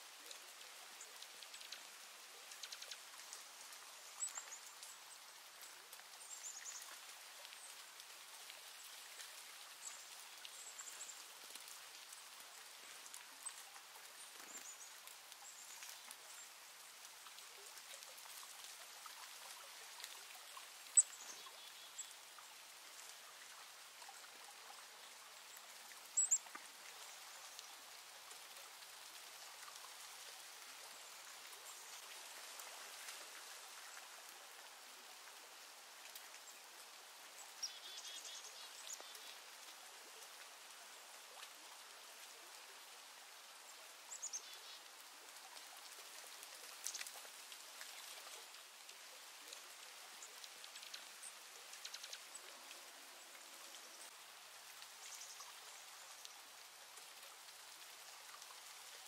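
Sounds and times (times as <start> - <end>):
soft hiss: 0.0 - 59.0.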